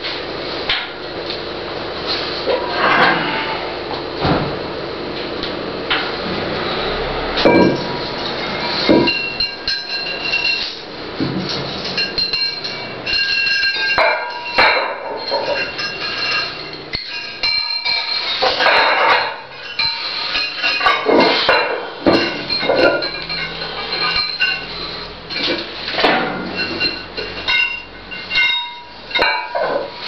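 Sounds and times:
ringing metallic knocks: 7.4 - 7.9, 8.9 - 10.7
metal weight plates clanking: 7.4 - 30.0.

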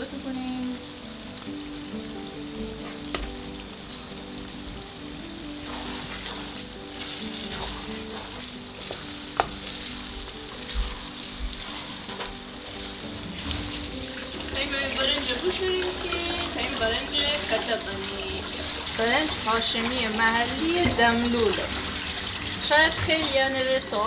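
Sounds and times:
onions sizzling in oil: 0.0 - 24.0
wooden spoon stirring: 5.5 - 24.0.

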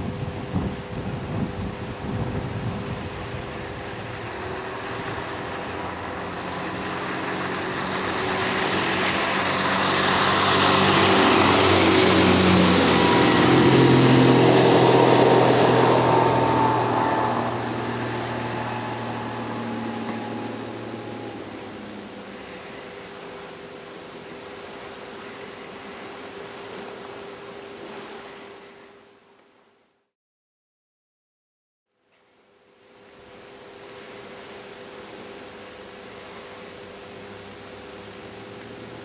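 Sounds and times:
rush of water and spray: 0.0 - 29.7, 32.2 - 39.0
outboard motor running: 1.4 - 23.8.

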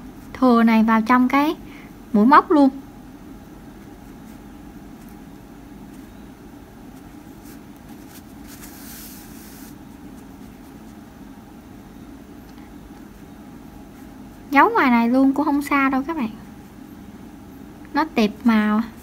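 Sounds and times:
low background hum: 0.0 - 19.0
yarn drawn through stitches: 7.0 - 9.8.

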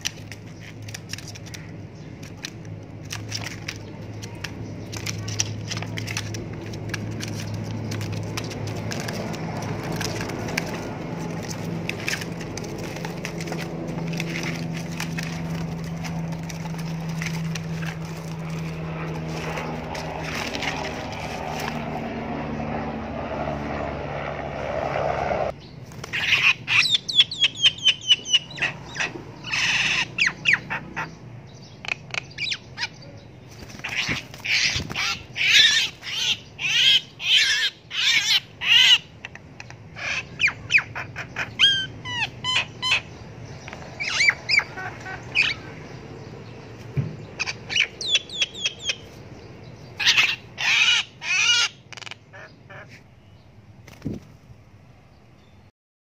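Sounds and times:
bird giving harsh rapid calls: 25.9 - 31.2, 31.8 - 46.0, 47.2 - 49.2, 49.9 - 53.2.

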